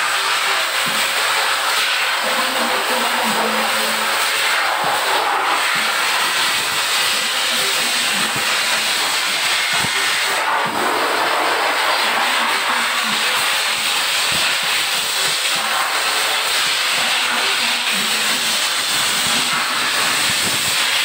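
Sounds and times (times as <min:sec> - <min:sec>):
pet blow dryer blowing air: 0:00.0 - 0:21.0.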